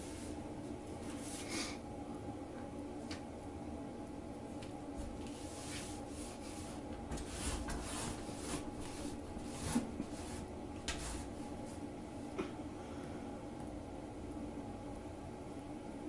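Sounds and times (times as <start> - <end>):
low background hum: 0.0 - 16.0
rubbing and scraping: 5.1 - 11.4.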